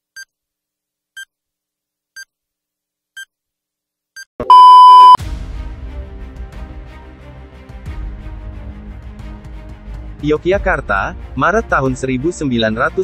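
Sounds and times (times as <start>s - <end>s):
countdown timer beeps: 4.4s - 5.2s
test tone: 4.4s - 5.2s.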